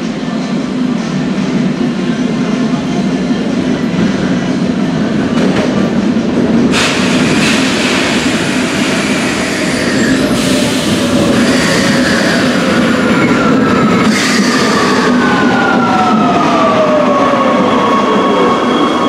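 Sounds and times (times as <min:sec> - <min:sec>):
wheels rumbling on rail: 0:00.0 - 0:19.0
train braking whine: 0:06.7 - 0:19.0.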